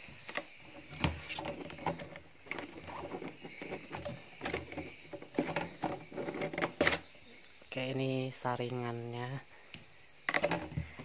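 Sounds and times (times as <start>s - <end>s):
plastic clicks and knocks: 10.3s - 11.0s.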